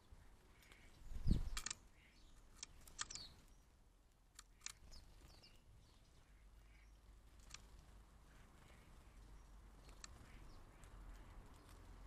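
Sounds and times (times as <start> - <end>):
sparrows chirping: 0.0 - 12.0.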